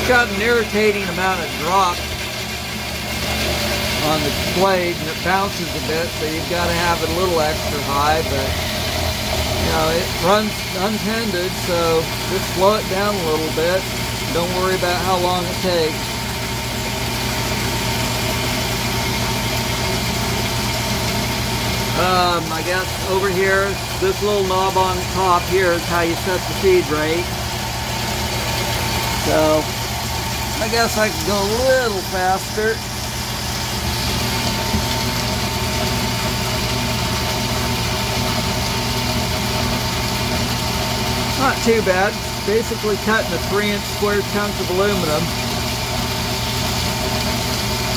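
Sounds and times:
bandsaw cutting metal bars: 0.0s - 16.1s, 30.4s - 35.4s.

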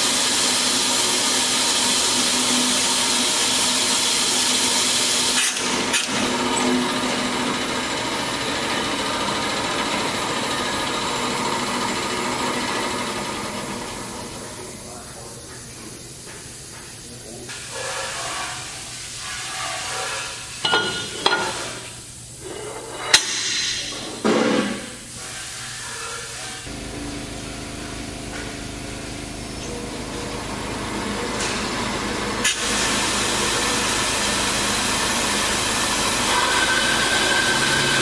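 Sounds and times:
bandsaw running: 0.0s - 14.8s, 29.7s - 38.0s
loud air hiss: 32.4s - 38.0s.

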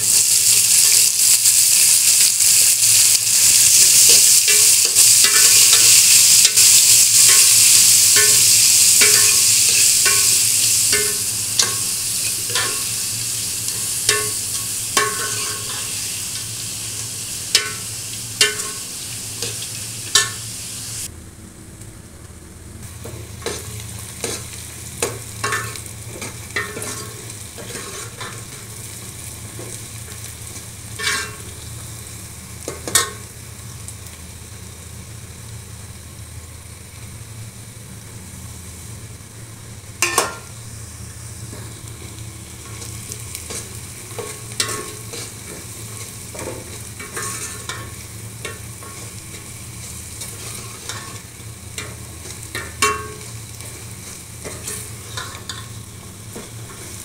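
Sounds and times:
food sizzling in hot oil: 0.0s - 21.1s, 22.8s - 57.0s
metal ladle scraping pot: 47.0s - 47.8s.

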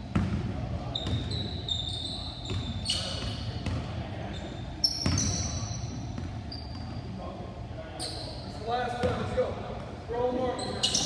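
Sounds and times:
basketball bouncing on wooden floor: 0.1s - 1.3s
sneaker squeaks: 0.1s - 7.2s, 7.9s - 9.3s, 10.4s - 11.0s.

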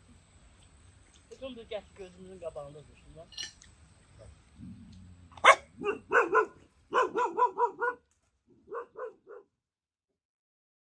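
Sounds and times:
dog barking in short yaps: 5.4s - 8.0s, 8.7s - 9.5s.

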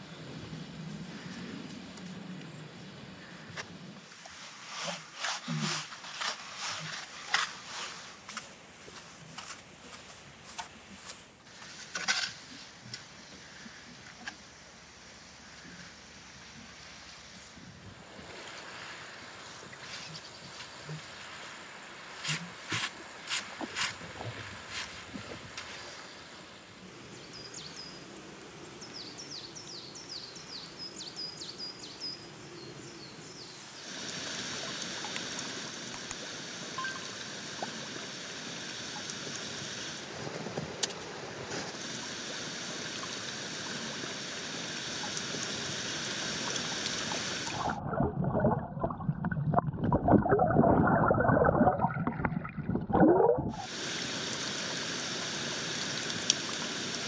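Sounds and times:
waterfall and stream rushing: 33.6s - 47.8s, 53.5s - 57.0s.

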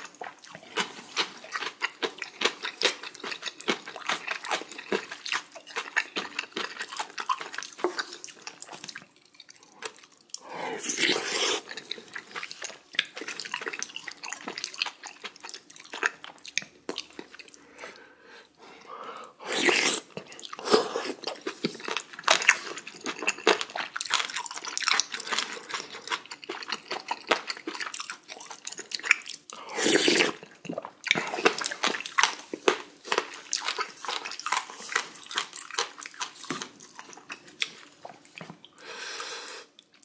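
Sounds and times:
wet chewing: 0.0s - 18.1s, 19.5s - 38.8s
person slurping from spoon: 10.4s - 11.8s, 19.4s - 21.5s, 29.6s - 31.5s.

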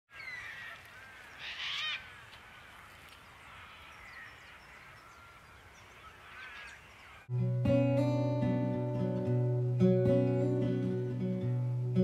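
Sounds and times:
birds chirping: 0.1s - 7.3s.

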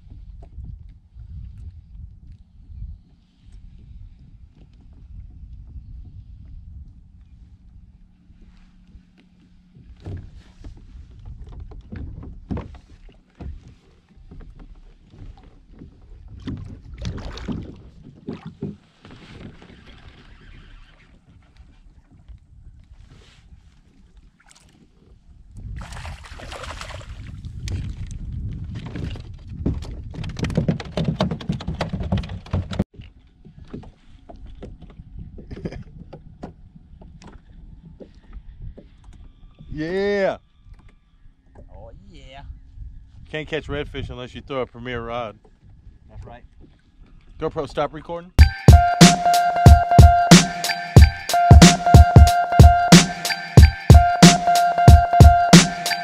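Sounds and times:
knocks and thumps on kayak: 9.7s - 20.1s, 27.7s - 38.2s
fish splashing in water: 25.8s - 27.2s.

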